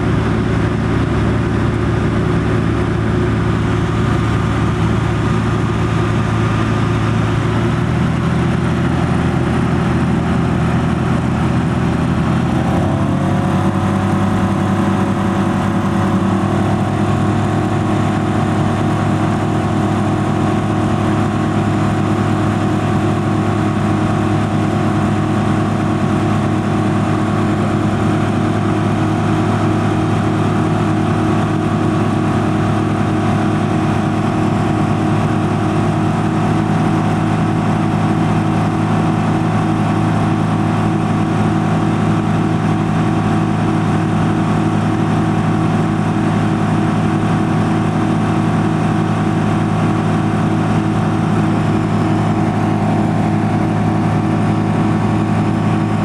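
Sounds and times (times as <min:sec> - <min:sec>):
light aircraft engine droning: 0:00.0 - 0:56.0.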